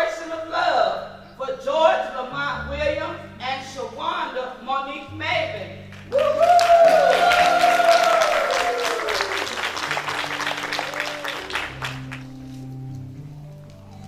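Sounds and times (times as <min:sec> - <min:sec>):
sustained keyboard chords: 0:00.0 - 0:06.1, 0:09.2 - 0:14.0
congregation applauding and cheering: 0:05.9 - 0:12.6.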